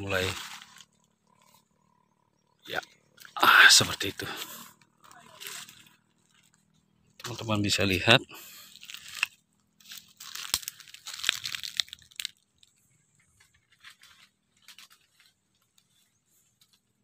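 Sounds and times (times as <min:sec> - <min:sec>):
dry leaves crunching and rustling: 0:00.0 - 0:01.0, 0:05.0 - 0:06.4, 0:08.6 - 0:12.7, 0:13.5 - 0:16.0
faint crackles: 0:00.0 - 0:07.6, 0:08.4 - 0:17.0.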